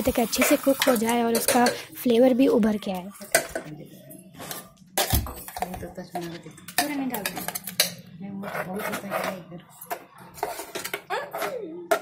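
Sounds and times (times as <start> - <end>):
spoon scraping a pot: 6.2 - 12.0.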